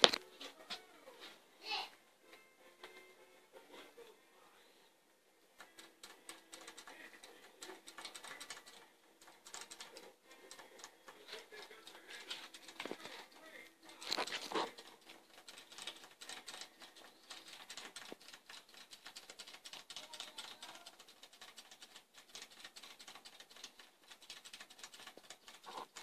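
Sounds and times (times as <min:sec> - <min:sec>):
rabbits chewing: 0:05.4 - 0:26.0.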